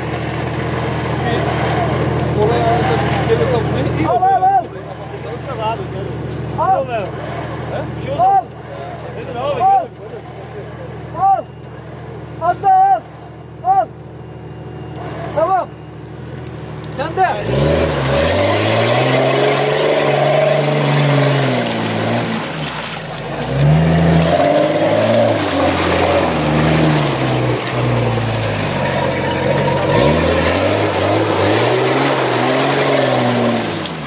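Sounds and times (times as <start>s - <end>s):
engine revving hard: 0.6s - 4.1s, 7.0s - 9.5s, 17.1s - 34.0s.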